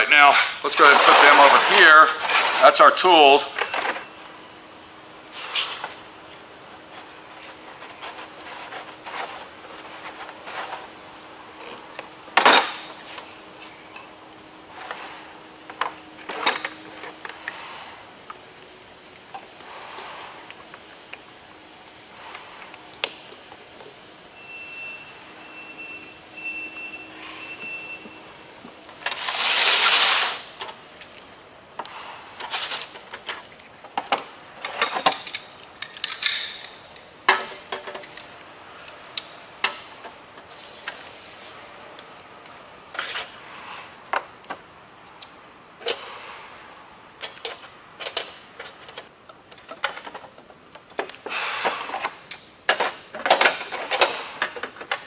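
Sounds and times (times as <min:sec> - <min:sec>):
loud rushing hiss: 0:29.2 - 0:30.6, 0:40.6 - 0:41.8.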